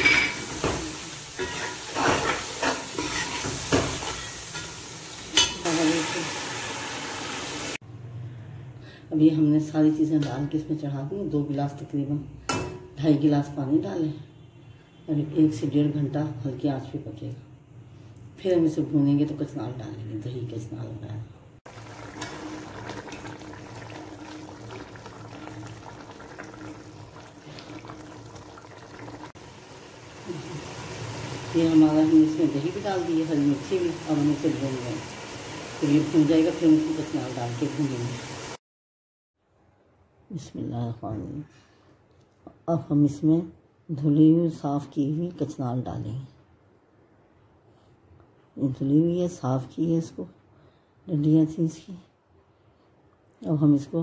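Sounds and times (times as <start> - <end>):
oil frying hiss: 0.0 - 7.8, 21.7 - 38.6
ladle scraping pot: 1.4 - 4.7
curry bubbling in a pot: 21.7 - 31.6.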